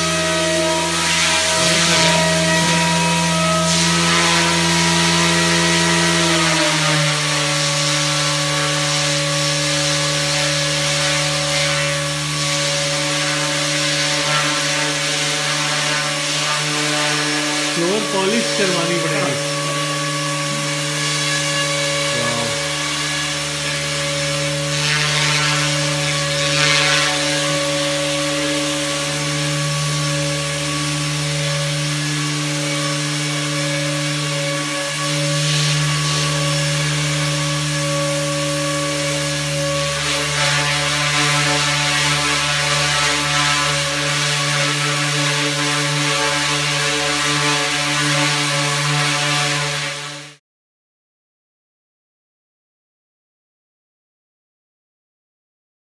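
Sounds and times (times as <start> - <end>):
rc helicopter motor whine: 0.0 - 8.1, 16.8 - 43.3.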